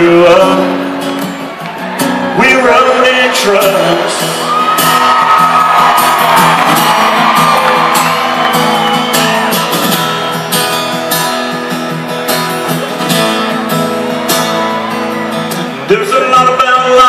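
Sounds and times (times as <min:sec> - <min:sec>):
amplified acoustic guitar strumming: 0:00.0 - 0:17.0
crowd shouting: 0:04.2 - 0:10.8, 0:14.0 - 0:16.6.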